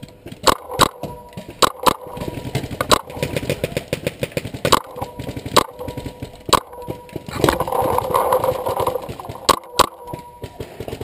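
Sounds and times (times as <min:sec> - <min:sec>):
paintball gun cracks: 0:00.4 - 0:03.6.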